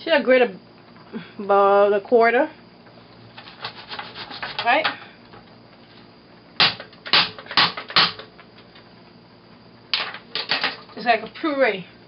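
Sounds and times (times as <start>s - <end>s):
metal grater scraping on board: 3.4s - 4.8s.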